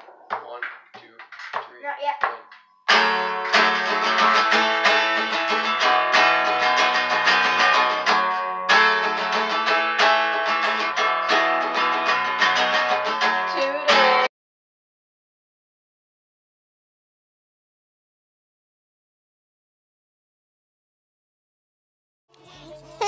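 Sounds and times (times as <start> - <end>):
strummed acoustic guitar music: 2.2 - 14.3.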